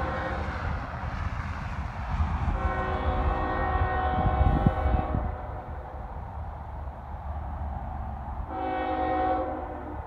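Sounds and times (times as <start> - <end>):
distant locomotive air horn: 2.5 - 5.5, 8.5 - 10.0.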